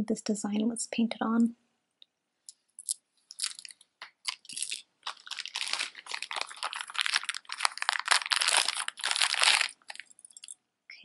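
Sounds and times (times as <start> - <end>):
plastic bag crinkling: 2.8 - 10.6.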